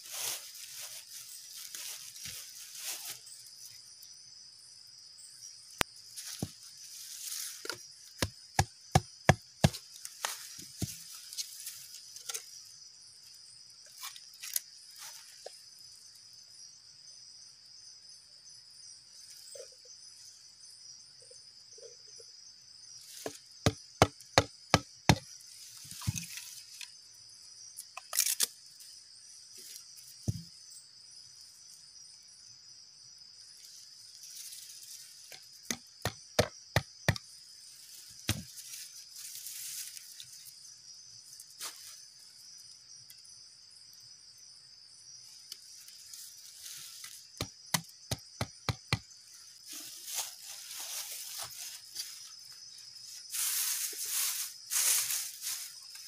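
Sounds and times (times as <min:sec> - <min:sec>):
high insect drone: 0:00.0 - 0:56.0
blade chopping wood: 0:07.6 - 0:11.0, 0:23.6 - 0:25.3, 0:35.7 - 0:37.2, 0:38.3 - 0:38.5, 0:47.4 - 0:49.1.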